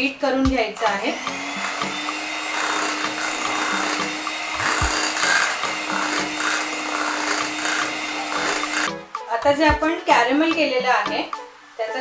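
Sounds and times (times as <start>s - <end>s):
beaters churning cream: 0.8s - 8.9s
hand mixer motor hum: 0.8s - 8.9s.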